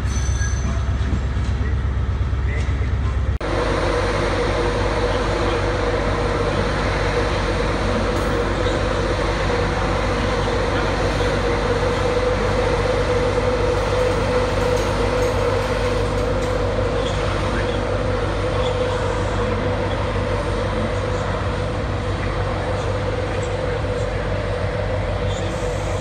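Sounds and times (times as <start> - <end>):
electric train droning: 0.0 - 26.0.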